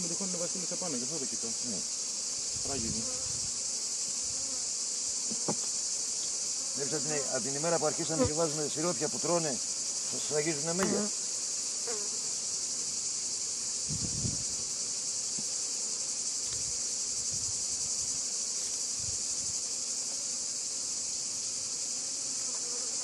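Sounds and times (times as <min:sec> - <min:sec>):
bees buzzing: 0:00.0 - 0:23.0.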